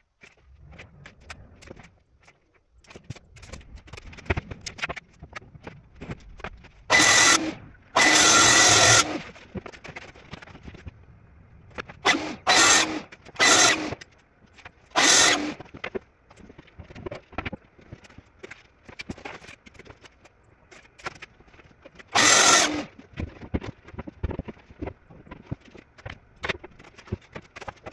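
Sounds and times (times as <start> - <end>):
track saw cutting plywood: 6.9 - 9.3, 12.0 - 14.0, 14.9 - 15.7, 22.1 - 23.0.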